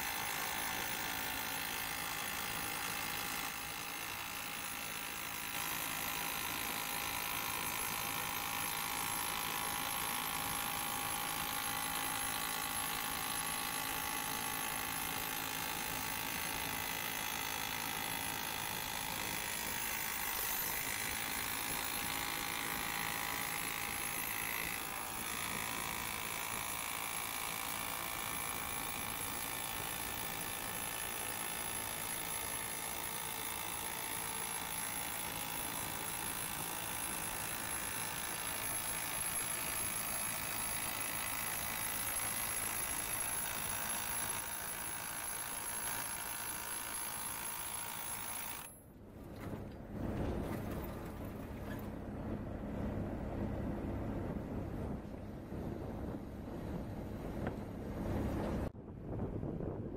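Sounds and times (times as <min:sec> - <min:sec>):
drill rig running: 0:00.0 - 0:49.4
wind on microphone: 0:53.6 - 0:59.9.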